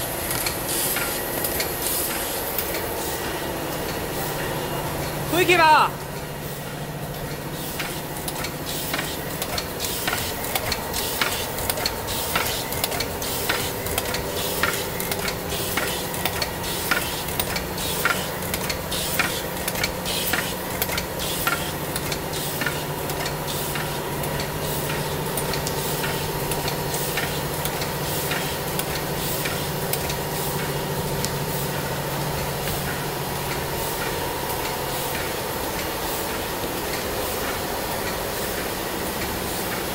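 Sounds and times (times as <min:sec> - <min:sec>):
machine hum and hiss: 0:00.0 - 0:39.9
sharp mechanical clicks and clacks: 0:00.0 - 0:39.9.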